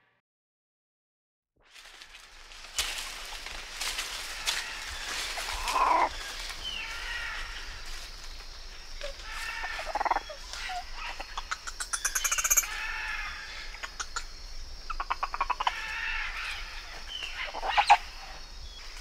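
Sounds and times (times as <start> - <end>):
animal rapid chattering: 9.9 - 12.7, 13.6 - 15.7.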